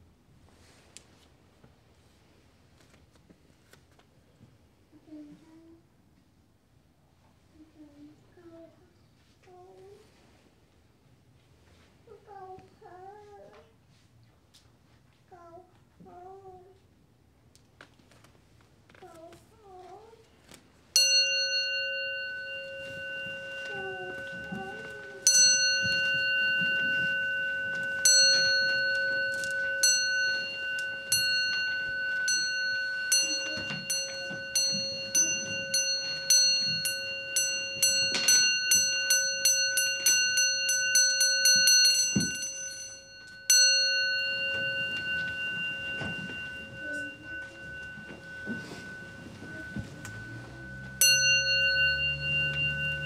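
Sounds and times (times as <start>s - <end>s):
rustling of people moving: 0.3s - 5.9s, 7.3s - 53.0s
bowl bell struck and ringing: 21.0s - 53.0s.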